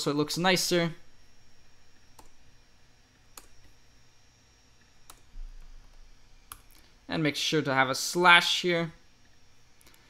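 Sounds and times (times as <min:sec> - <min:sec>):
faint keyboard and mouse clicks: 0:05.0 - 0:05.3, 0:06.5 - 0:06.8.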